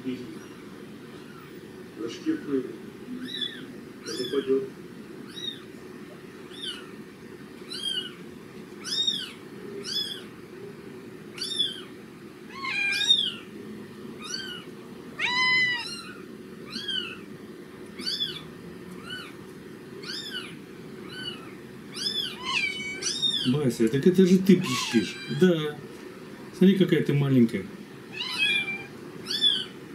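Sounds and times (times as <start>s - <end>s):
kitten mewing through speakers: 15.2s - 17.2s, 24.6s - 25.5s.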